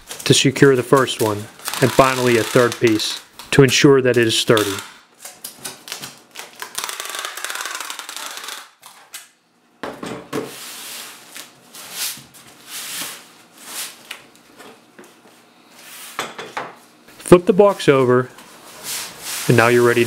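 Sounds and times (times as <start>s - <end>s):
packing tape screeching: 0.0s - 3.5s, 4.5s - 5.0s, 5.6s - 9.0s.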